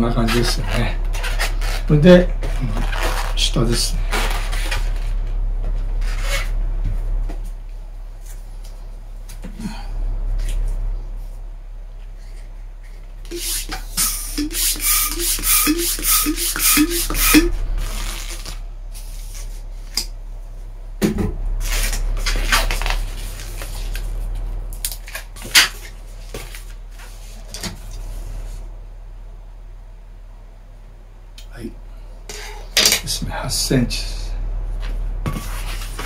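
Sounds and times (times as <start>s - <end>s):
balloon pump air rush and squeak: 13.3s - 18.5s.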